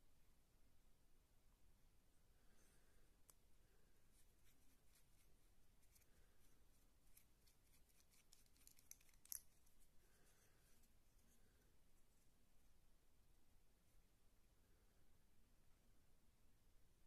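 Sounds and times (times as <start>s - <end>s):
clicks and rubbing of pipe parts: 7.1s - 9.8s.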